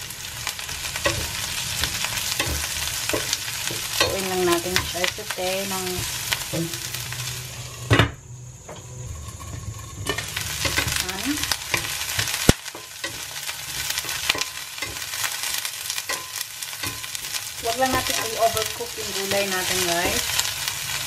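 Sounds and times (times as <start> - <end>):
vegetables sizzling in a skillet: 0.0 - 21.0
wooden spatula scraping vegetables: 8.9 - 21.0.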